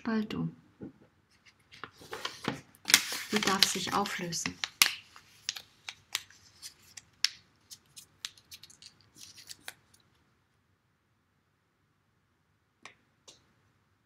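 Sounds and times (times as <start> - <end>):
paper crinkling: 1.4 - 10.2.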